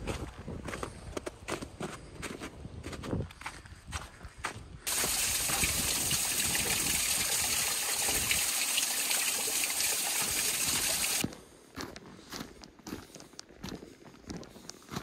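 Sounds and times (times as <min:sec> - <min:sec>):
water trickling onto stones: 0:04.9 - 0:11.2.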